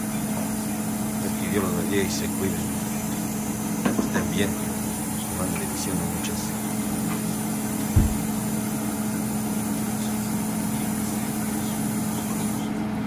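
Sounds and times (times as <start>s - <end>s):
steady mechanical hum: 0.0s - 13.0s
dull thump: 7.9s - 8.4s.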